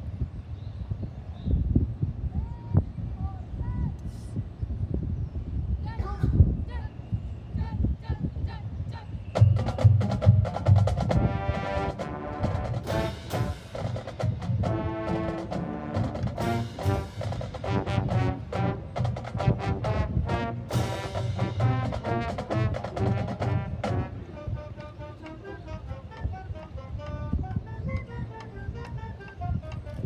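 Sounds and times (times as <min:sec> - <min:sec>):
marching band playing: 0:09.4 - 0:30.0.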